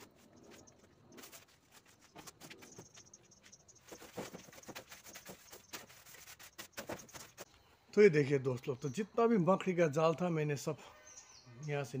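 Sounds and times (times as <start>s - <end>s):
broom scraping metal roof: 3.8s - 7.5s.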